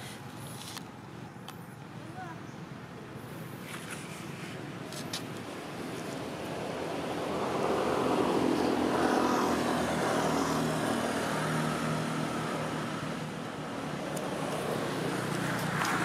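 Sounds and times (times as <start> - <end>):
vehicle engine passing: 6.8 - 16.0.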